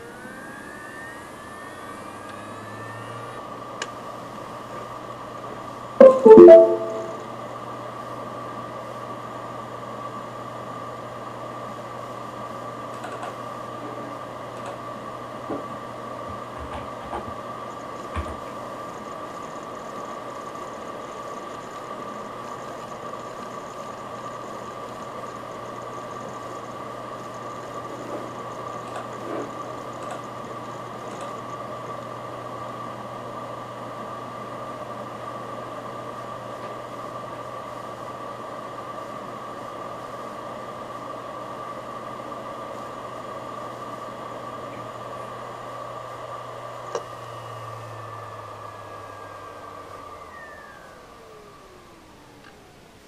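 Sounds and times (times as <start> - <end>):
hard drive whine and hum: 10.0 - 53.0.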